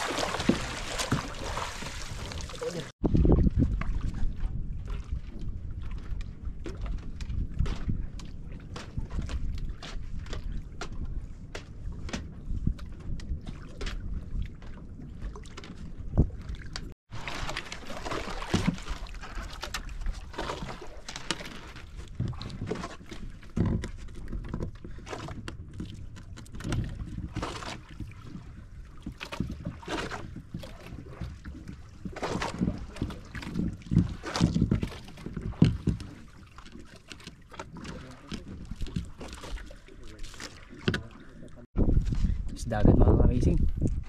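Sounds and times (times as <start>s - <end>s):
water lapping around boat: 0.0s - 44.0s
knocks on boat: 32.1s - 36.3s.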